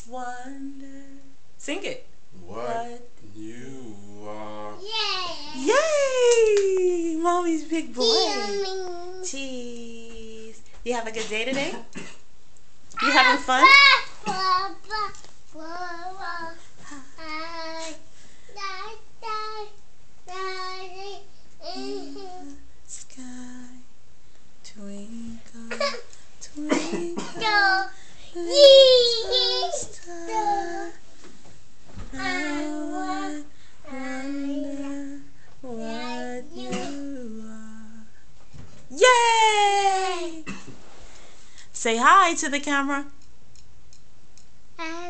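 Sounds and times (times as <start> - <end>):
toddler singing without words: 4.8 - 5.8, 8.0 - 9.3, 13.0 - 22.7, 25.2 - 31.1, 32.0 - 38.1
toddler singing drawn-out notes: 20.3 - 22.6, 27.4 - 31.0, 32.1 - 37.4.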